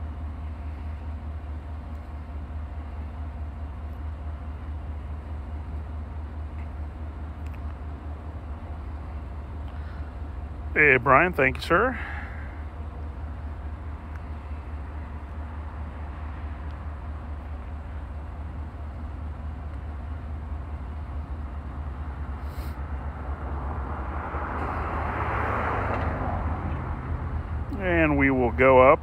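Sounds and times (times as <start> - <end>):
low street rumble: 0.0 - 29.0
vehicle passing by: 22.3 - 28.8.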